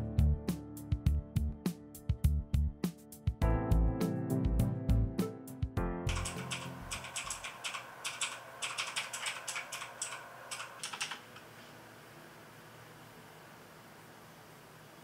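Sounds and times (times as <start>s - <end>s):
keyboard key clicks: 6.1s - 11.2s
faint room hiss: 11.2s - 15.0s.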